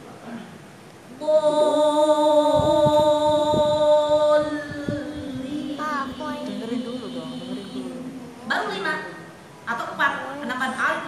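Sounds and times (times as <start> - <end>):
woman chanting a long vowel: 1.2 - 8.2.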